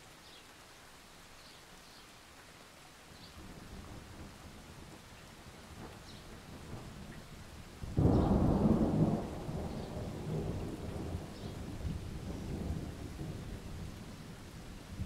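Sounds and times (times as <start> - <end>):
steady rain: 0.0 - 15.0
thunder rumbling: 7.8 - 15.0.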